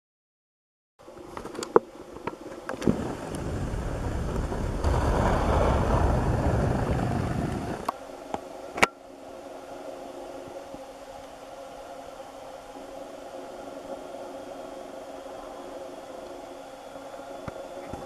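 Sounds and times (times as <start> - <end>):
faint steady hum: 1.0 - 18.0
low rumbling noise: 2.7 - 11.0.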